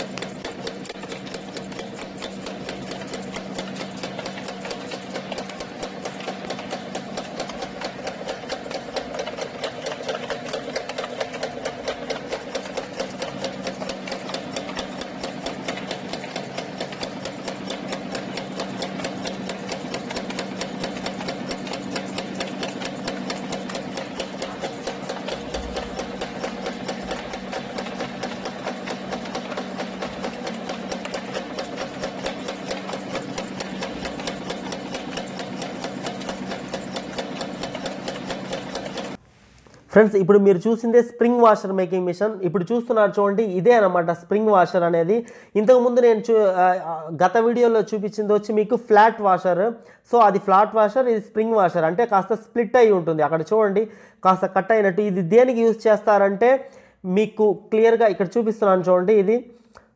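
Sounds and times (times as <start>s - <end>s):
machine punching and cutting wire: 0.0s - 39.2s
steady machine hum: 0.0s - 40.0s.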